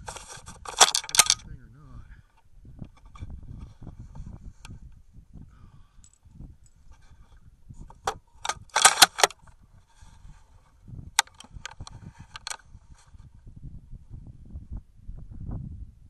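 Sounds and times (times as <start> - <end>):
rifle mechanism clicking and rattling: 0.0 - 1.4, 7.9 - 9.4, 11.2 - 12.6.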